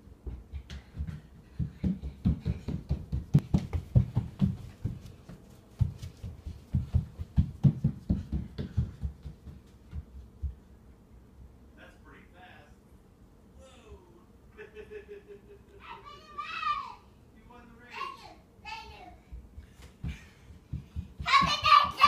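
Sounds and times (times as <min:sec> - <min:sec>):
child running on wooden floor: 0:00.2 - 0:10.7, 0:19.3 - 0:22.0.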